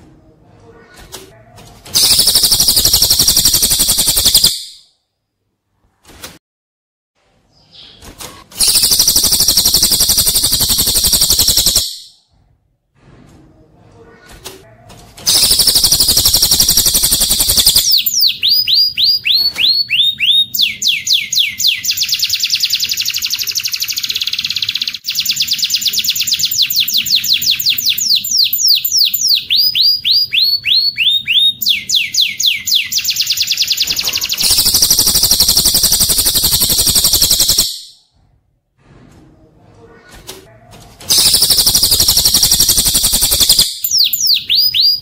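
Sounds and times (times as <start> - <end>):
buzzy bird trill: 2.0 - 4.8, 8.6 - 12.1, 15.3 - 37.9, 41.1 - 45.0.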